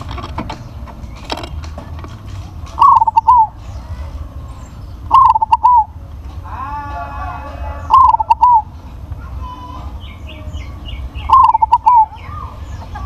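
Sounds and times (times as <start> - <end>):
dove cooing: 2.7 - 4.1, 5.1 - 5.9, 7.7 - 8.7, 11.2 - 13.0
faint bird call: 2.8 - 8.7, 9.7 - 13.0.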